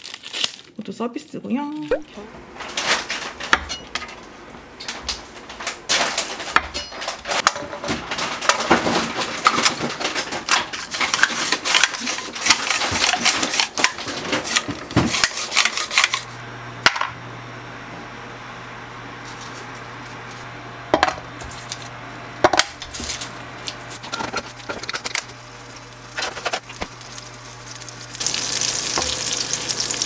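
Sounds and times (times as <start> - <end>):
garlic slicer clicking and scraping: 10.6 - 16.3
steady low hum: 15.9 - 30.0.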